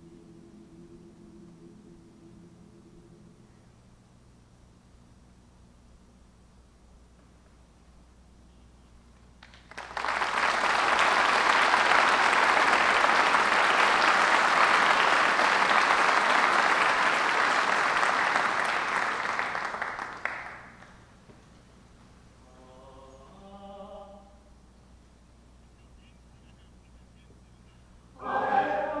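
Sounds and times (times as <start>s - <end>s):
audience applauding: 9.4s - 21.0s.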